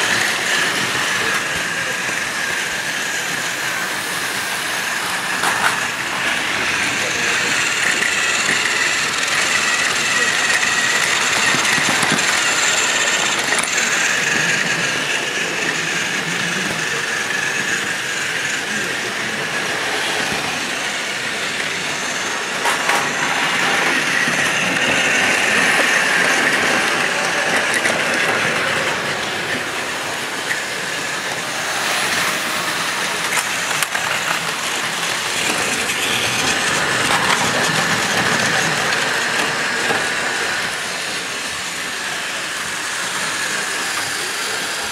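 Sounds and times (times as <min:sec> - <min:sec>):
toy train motor whine: 0:00.0 - 0:44.9
plastic wheels clattering on track: 0:07.0 - 0:15.8.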